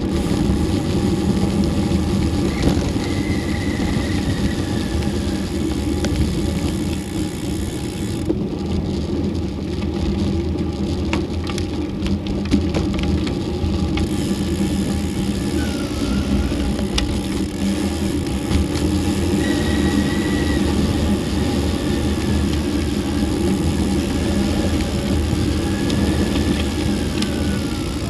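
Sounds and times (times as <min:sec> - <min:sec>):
tyre noise on rough asphalt: 0:00.0 - 0:28.0
clicks and crackles: 0:04.9 - 0:08.4, 0:09.4 - 0:15.8, 0:16.6 - 0:19.2, 0:21.4 - 0:28.0.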